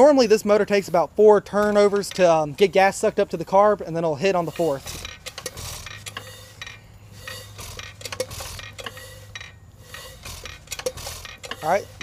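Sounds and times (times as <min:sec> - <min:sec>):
engine turned over by hand: 0:04.6 - 0:12.0
metallic clicks and clinks: 0:04.6 - 0:12.0.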